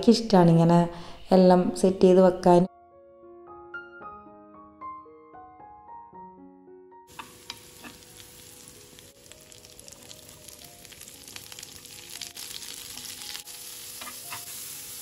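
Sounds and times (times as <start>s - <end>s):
piano music: 2.7s - 15.0s
metal spoon clicking on pan: 7.1s - 8.0s
vegetables sizzling in oil: 7.1s - 15.0s.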